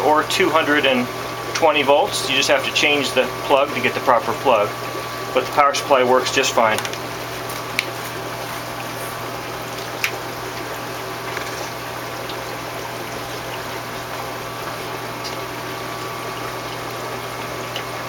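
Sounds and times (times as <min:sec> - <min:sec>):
pump hum: 0:00.0 - 0:18.0
water and air bubbles churning: 0:00.0 - 0:18.0.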